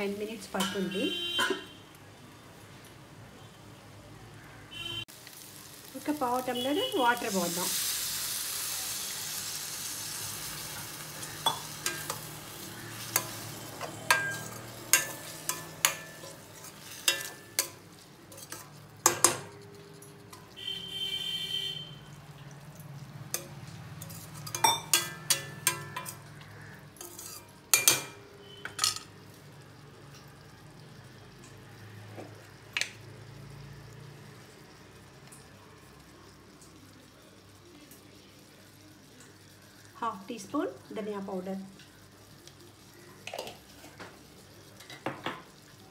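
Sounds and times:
vegetables sizzling in a pan: 0:00.0 - 0:02.8, 0:03.5 - 0:45.9
spoon clinking and scraping pan: 0:00.6 - 0:01.8, 0:10.8 - 0:20.5, 0:23.3 - 0:26.3, 0:27.0 - 0:29.2.

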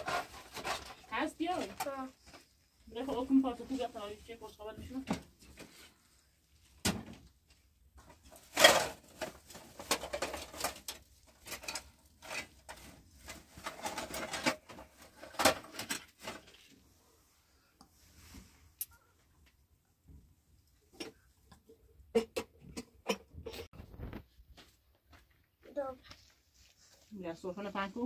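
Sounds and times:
household items rustling and clinking: 0:00.0 - 0:16.9.

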